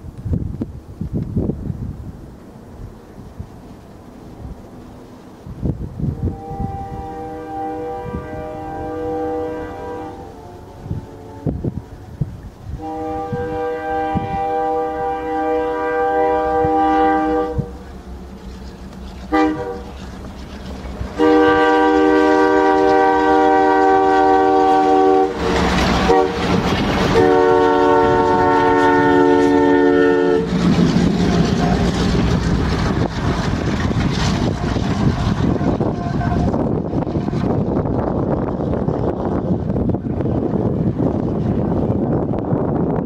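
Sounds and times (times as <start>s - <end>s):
passing locomotives: 0.0s - 43.0s
diesel train horn blasts: 6.0s - 18.4s, 19.3s - 20.0s, 21.1s - 32.2s, 34.5s - 37.9s.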